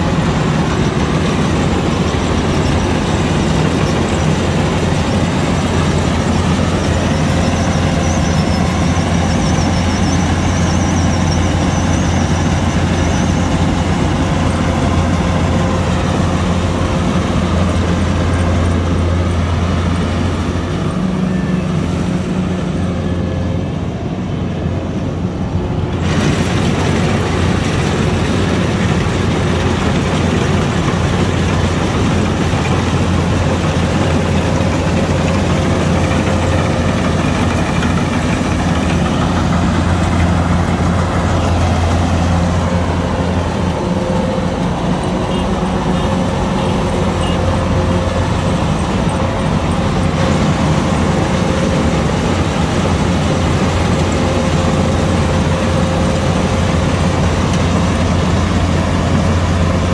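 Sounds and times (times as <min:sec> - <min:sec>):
combine harvester engine humming: 0:00.0 - 0:59.9
threshing gear rushing noise: 0:25.8 - 0:45.2.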